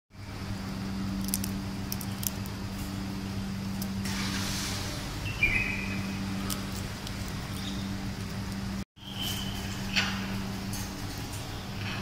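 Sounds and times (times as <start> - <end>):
steady low hum: 0.1 - 12.0.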